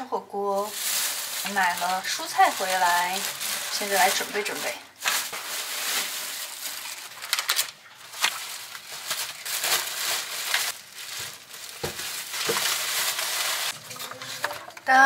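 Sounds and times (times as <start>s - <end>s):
plastic bags crinkling: 0.4s - 15.0s.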